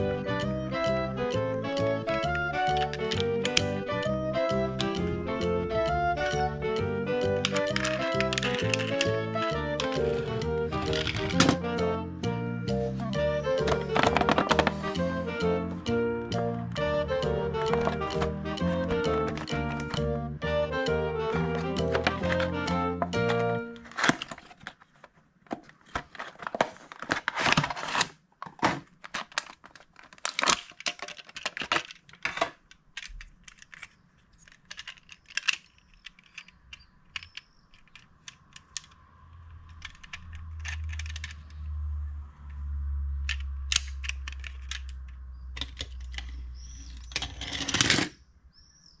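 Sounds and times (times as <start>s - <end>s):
toy car rolling on windowsill: 2.0s - 5.2s, 7.2s - 11.9s, 29.1s - 41.8s, 43.2s - 48.2s
packaging crinkling and tearing: 7.5s - 11.6s, 23.7s - 36.0s.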